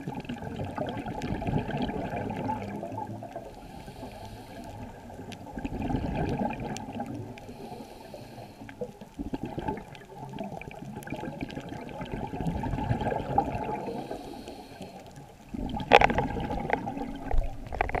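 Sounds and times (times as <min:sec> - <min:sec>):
exhaled bubbles gurgling underwater: 0:00.0 - 0:18.0
regulator inhale hiss: 0:03.4 - 0:05.1, 0:07.4 - 0:09.0, 0:13.8 - 0:15.3.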